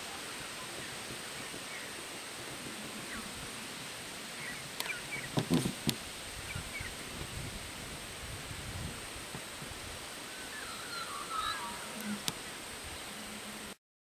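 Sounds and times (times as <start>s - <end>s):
steady hiss: 0.0s - 13.8s
faint bird chirps: 4.4s - 5.4s, 10.2s - 13.7s.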